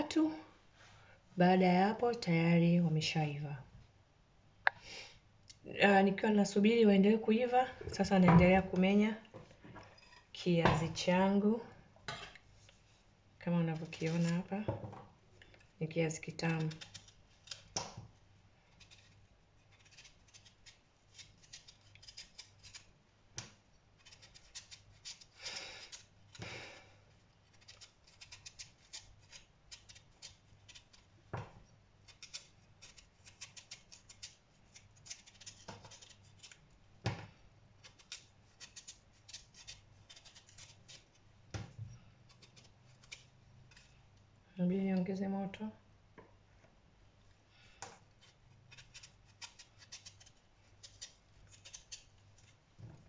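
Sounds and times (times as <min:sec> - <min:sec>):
knife scraping sweet potato skin: 0:13.6 - 0:14.5, 0:16.3 - 0:18.0, 0:18.7 - 0:23.0, 0:23.9 - 0:31.1, 0:32.0 - 0:36.7, 0:37.8 - 0:41.2, 0:42.2 - 0:44.0, 0:48.2 - 0:52.6.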